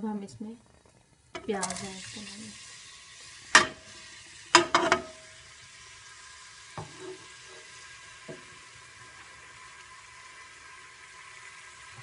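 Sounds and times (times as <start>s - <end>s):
onions sizzling in oil: 1.2s - 12.0s
plate clattering against pot: 3.6s - 3.8s, 4.6s - 5.2s.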